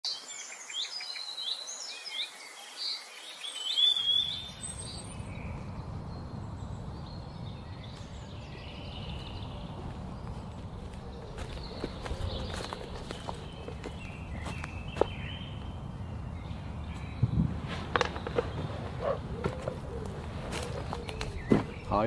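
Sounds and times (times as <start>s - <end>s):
birds singing: 0.1s - 22.0s
steady low rumble: 4.7s - 21.1s.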